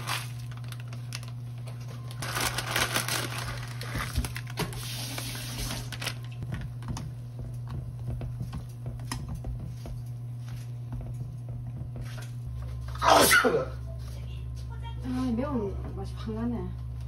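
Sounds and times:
packet rustle: 0:00.0 - 0:06.4
steady low hum: 0:05.6 - 0:17.0.

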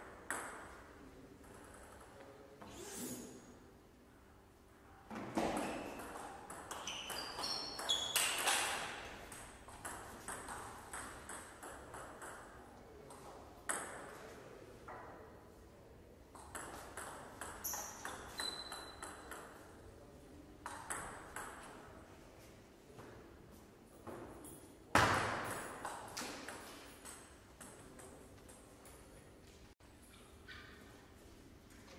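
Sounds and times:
sneakers squeaking on floor: 0:05.4 - 0:09.0, 0:17.4 - 0:19.3.

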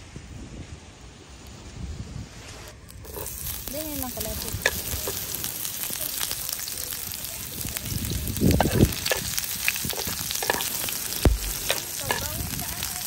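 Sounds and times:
onions sizzling in oil: 0:02.9 - 0:13.0
spatula scraping a pan: 0:03.0 - 0:05.4, 0:08.4 - 0:12.6.

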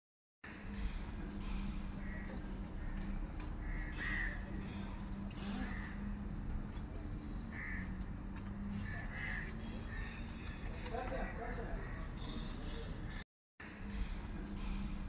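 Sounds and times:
steady low hum: 0:00.5 - 0:15.0
crows cawing: 0:02.0 - 0:06.2, 0:07.4 - 0:13.2.

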